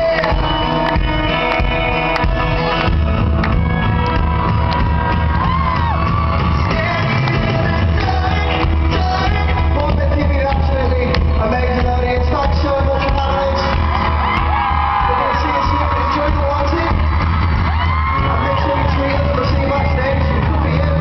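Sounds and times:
lead vocal: 0.0s - 1.5s, 5.6s - 21.0s
acoustic guitar: 0.0s - 21.0s
bass guitar: 0.0s - 21.0s
electric guitar: 0.0s - 21.0s
crowd shouting along: 2.6s - 7.0s, 13.8s - 19.4s.

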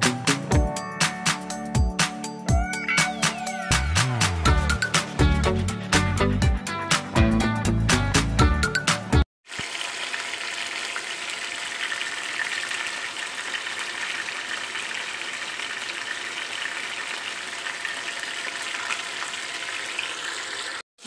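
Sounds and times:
fish sizzling in oil: 9.5s - 20.8s.

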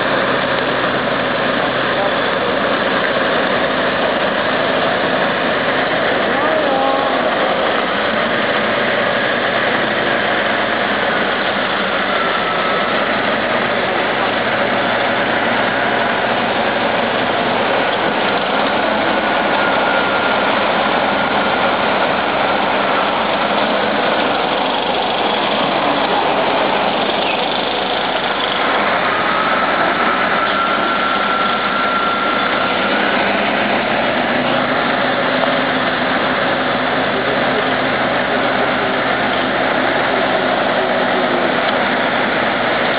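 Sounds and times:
faint high whine: 0.0s - 42.9s
heavy diesel engines droning: 0.0s - 42.9s.

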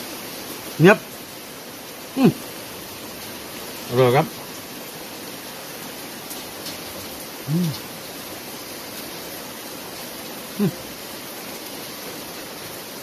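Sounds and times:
rain falling: 0.0s - 13.0s
man humming while chewing: 2.2s - 2.4s, 7.4s - 7.9s, 10.6s - 10.9s.

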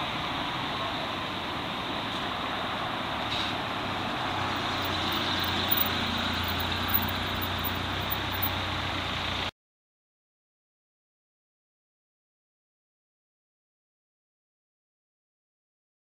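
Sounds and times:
moving vehicle running noise: 0.0s - 9.5s.

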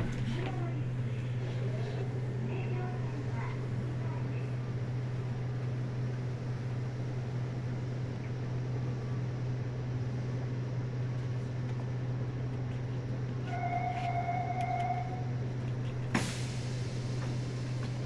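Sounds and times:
train equipment humming: 0.0s - 18.0s
machinery hiss: 16.2s - 18.0s.

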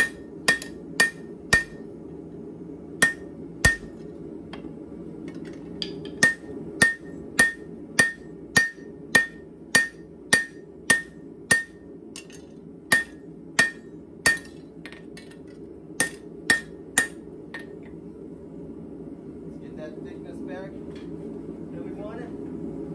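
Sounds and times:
hammer blows on anvil: 0.0s - 1.8s, 3.0s - 4.0s, 6.1s - 11.8s, 12.9s - 14.6s
low hum: 0.0s - 22.9s.

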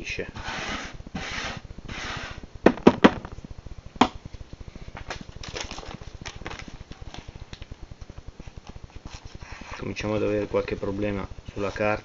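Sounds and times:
sharp knocks on wood: 2.7s - 3.3s.

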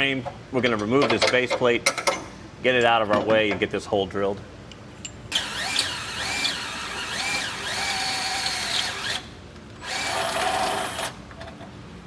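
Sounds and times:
drill motor whining: 5.4s - 11.1s.

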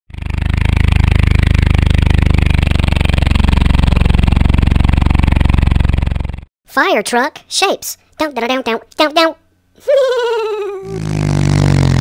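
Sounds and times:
truck engine rumbling: 0.2s - 6.5s.

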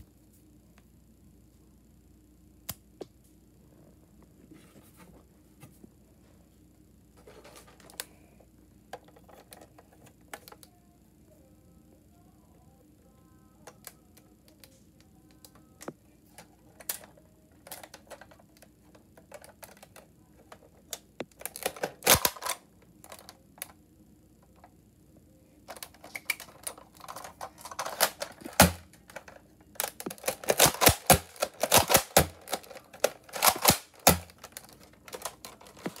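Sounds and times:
toy pistol plastic clicks: 21.3s - 23.3s, 25.7s - 36.0s.

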